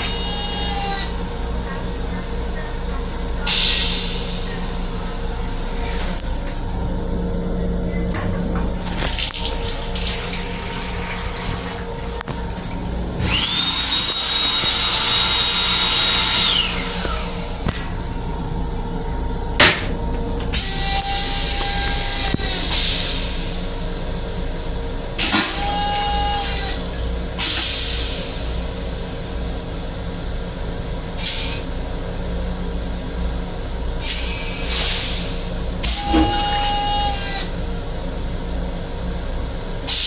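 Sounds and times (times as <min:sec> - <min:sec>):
moving train rumble: 0:00.0 - 0:40.0
toilet flush rushing: 0:06.0 - 0:23.7, 0:25.2 - 0:28.5, 0:34.1 - 0:37.7
hand dryer whine: 0:08.1 - 0:23.1, 0:25.2 - 0:27.1, 0:35.8 - 0:37.7.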